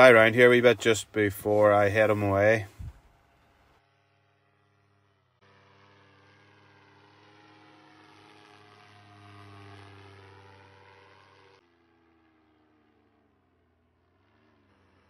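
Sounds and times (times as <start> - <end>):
paramotor propeller engine droning: 0.0 - 15.0.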